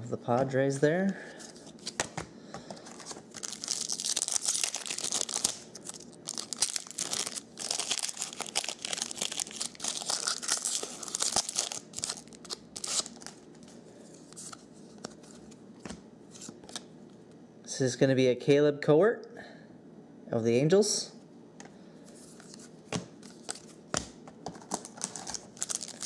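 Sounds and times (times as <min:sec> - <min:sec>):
foil wrapper crinkling: 0:02.8 - 0:13.6, 0:24.6 - 0:26.0.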